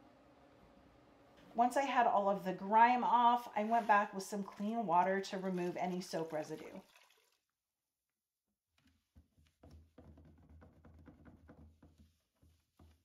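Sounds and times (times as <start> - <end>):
cloth rubbing and tapping: 8.8 - 13.0.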